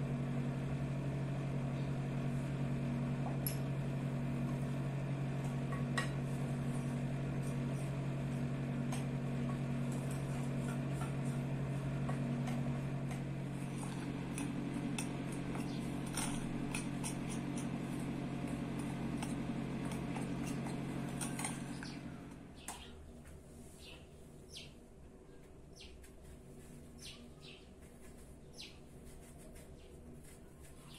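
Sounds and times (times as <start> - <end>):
steady low hum: 0.0 - 30.9
spoon stirring flour in bowl: 5.4 - 21.8.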